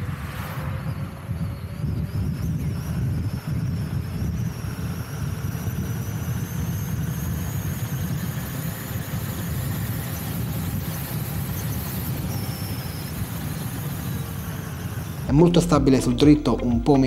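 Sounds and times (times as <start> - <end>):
high electric motor whine: 0.0 - 15.4
road rumble: 0.0 - 17.0
wind: 0.0 - 17.0.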